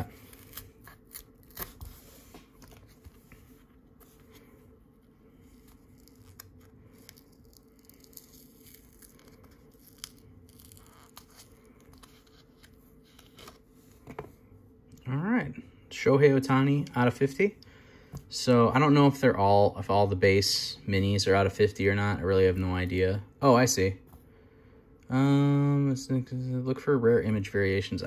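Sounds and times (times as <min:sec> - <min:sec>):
card paper tearing: 0:00.0 - 0:02.0
faint low hum: 0:00.0 - 0:28.0.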